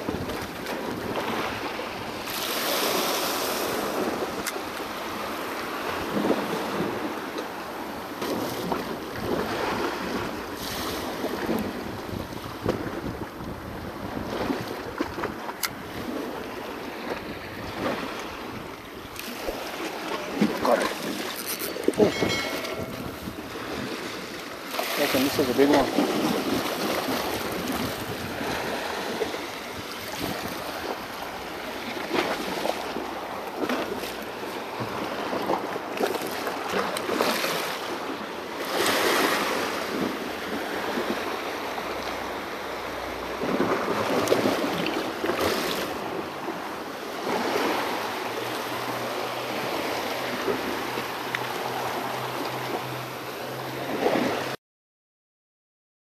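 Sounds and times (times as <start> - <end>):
wind buffeting microphone: 0.0 - 38.2
waves washing against rocks: 0.0 - 54.6.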